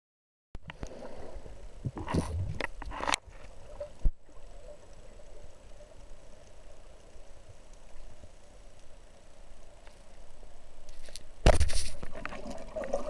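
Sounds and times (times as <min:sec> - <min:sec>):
underwater rushing: 0:12.1 - 0:13.0.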